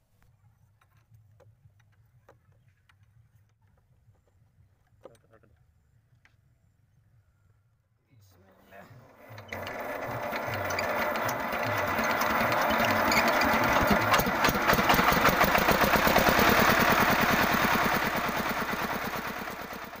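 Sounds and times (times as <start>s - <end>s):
diesel engine running: 9.2s - 20.0s.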